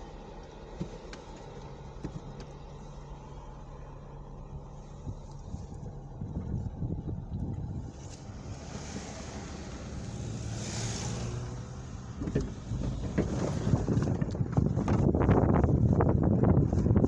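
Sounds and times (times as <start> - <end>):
car cabin low rumble: 0.0 - 17.0
tyres hissing past on wet road: 8.2 - 11.9
knocks and bumps: 12.0 - 15.7.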